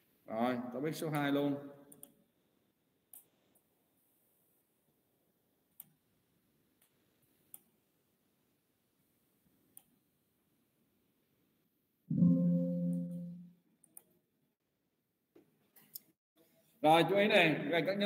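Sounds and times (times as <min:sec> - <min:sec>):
computer alert chime: 0:12.1 - 0:13.4.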